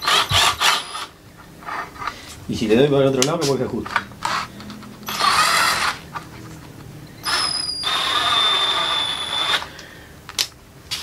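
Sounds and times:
cordless drill whirring: 0:00.0 - 0:01.1, 0:05.1 - 0:06.0, 0:07.2 - 0:09.8.

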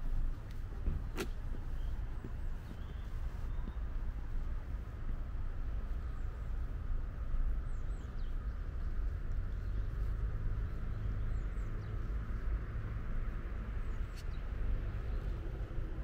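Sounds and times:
distant city traffic rumble: 0:00.0 - 0:16.0
faint bird chirps: 0:02.6 - 0:04.0.

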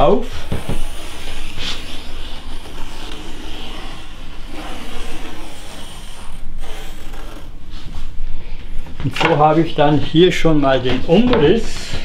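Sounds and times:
pencil scratching on plywood: 0:00.4 - 0:07.4.

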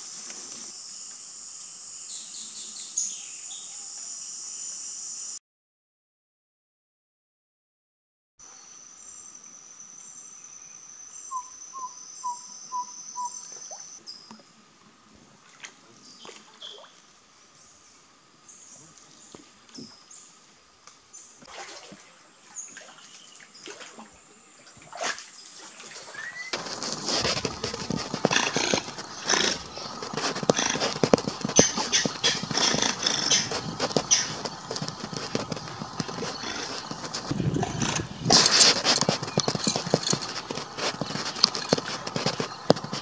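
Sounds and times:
high insect buzz: 0:00.0 - 0:05.4, 0:08.4 - 0:14.0, 0:26.3 - 0:43.0
short animal calls: 0:26.2 - 0:42.5.

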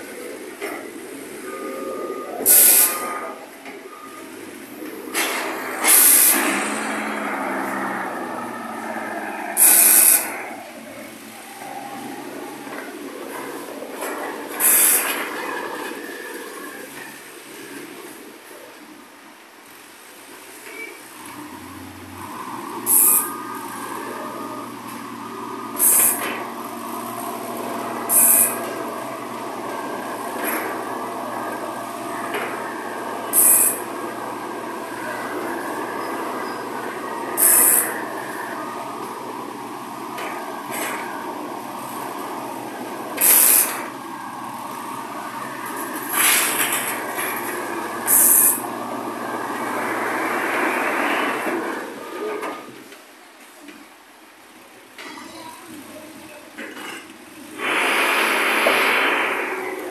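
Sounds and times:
diesel truck engine running: 0:00.0 - 0:16.9, 0:21.2 - 0:52.8
construction machinery din: 0:00.0 - 0:18.7, 0:20.7 - 0:59.9
high-pitched hiss or squeal: 0:01.2 - 0:17.8, 0:20.7 - 0:52.4, 0:57.4 - 0:59.9
air brake hiss: 0:02.4 - 0:03.3, 0:05.2 - 0:07.5, 0:09.4 - 0:10.4, 0:14.6 - 0:15.2, 0:25.8 - 0:26.4, 0:28.1 - 0:28.8, 0:33.3 - 0:34.0, 0:37.4 - 0:38.1, 0:43.2 - 0:43.9, 0:48.1 - 0:48.6, 0:57.6 - 0:59.9.

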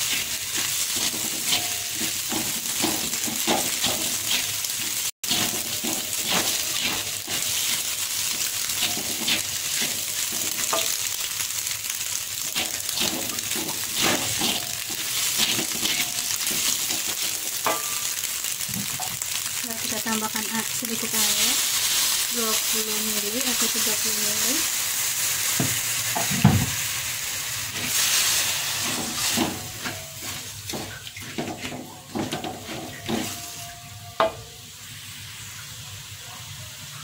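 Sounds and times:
spatula scraping a wok: 0:00.0 - 0:11.2, 0:12.4 - 0:18.2, 0:27.6 - 0:33.8
food sizzling in oil: 0:00.0 - 0:37.0.

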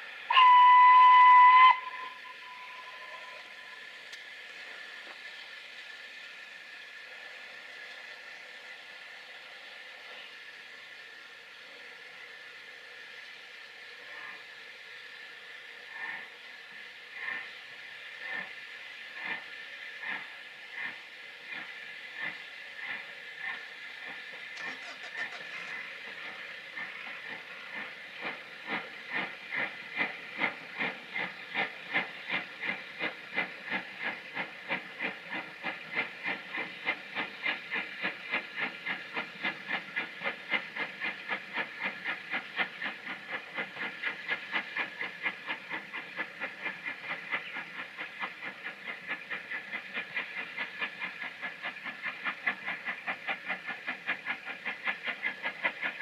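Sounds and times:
steam hissing: 0:00.0 - 0:56.0
steam locomotive chuffing: 0:00.0 - 0:56.0.

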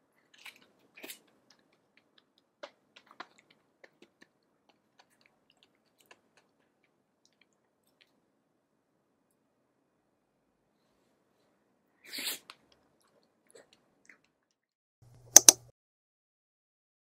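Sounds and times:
faint wet chewing: 0:00.2 - 0:08.2, 0:12.4 - 0:14.6.

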